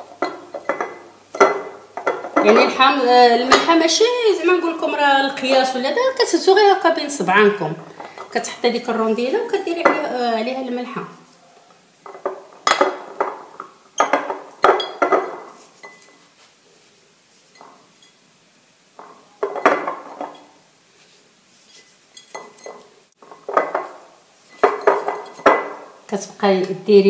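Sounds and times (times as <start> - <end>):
glass jar clinking: 0.0 - 2.7, 12.0 - 16.2, 17.5 - 18.2, 19.0 - 20.6, 21.7 - 25.8.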